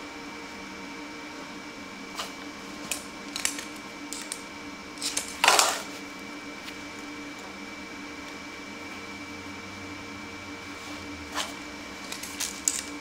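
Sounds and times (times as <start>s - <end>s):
welder cooling fan hum: 0.0s - 13.0s.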